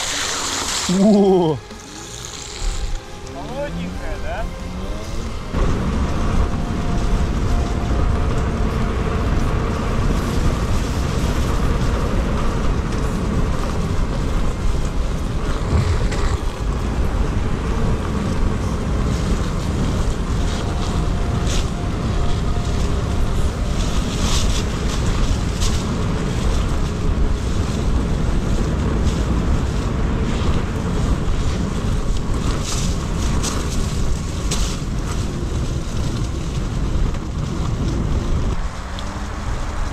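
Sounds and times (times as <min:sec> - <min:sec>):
electric motor whine: 0:00.0 - 0:29.2
wind rushing over microphone: 0:00.0 - 0:39.9.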